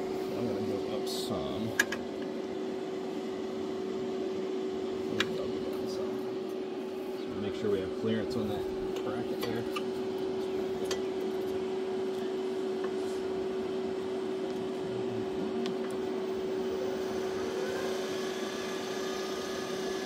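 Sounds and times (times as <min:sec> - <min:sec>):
brake lathe motor humming: 0:15.8 - 0:20.0.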